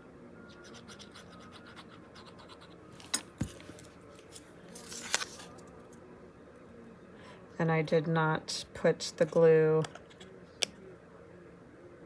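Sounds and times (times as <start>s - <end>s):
paper rustling: 3.0s - 5.8s.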